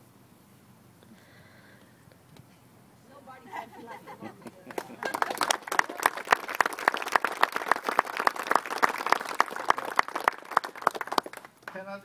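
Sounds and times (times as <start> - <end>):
nearby person clapping: 4.4 - 11.9
crowd applauding: 4.6 - 12.0.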